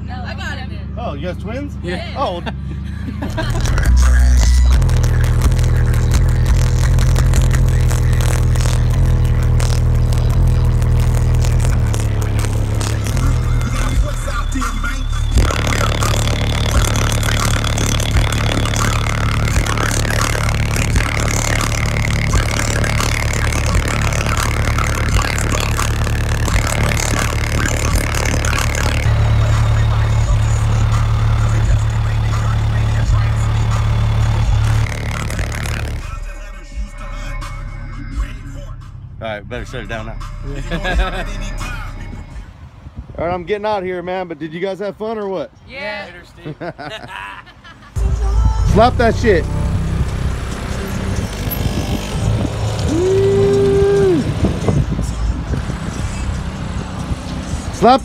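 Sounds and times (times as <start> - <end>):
car engine rumble: 0.0 - 44.3, 47.5 - 58.0
loud subwoofer bass note: 3.3 - 37.0, 48.0 - 56.9
person shouting: 52.9 - 54.3.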